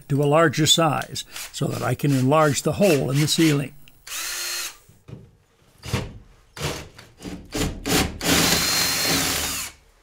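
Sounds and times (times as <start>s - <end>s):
drill boring through drywall: 3.0s - 4.8s, 6.6s - 9.8s.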